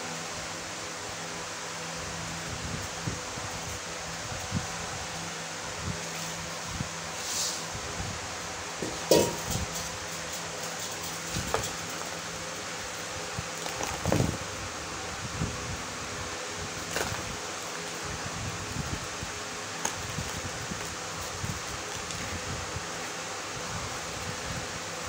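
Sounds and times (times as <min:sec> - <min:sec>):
steady hiss: 0:00.0 - 0:25.0
dry dirt crackling and crunching: 0:08.8 - 0:14.6, 0:16.7 - 0:23.0.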